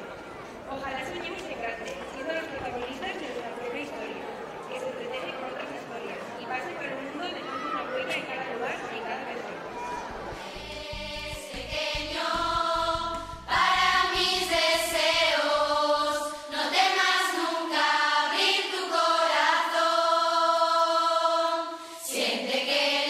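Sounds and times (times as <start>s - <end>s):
choir singing long notes: 8.9s - 23.0s.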